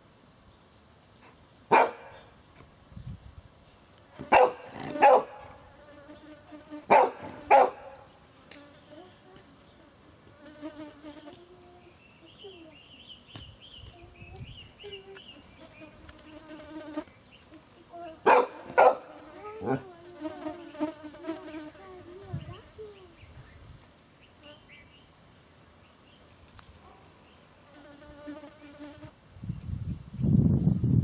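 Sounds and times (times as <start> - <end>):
fly buzzing: 4.1 - 22.9, 27.6 - 29.2.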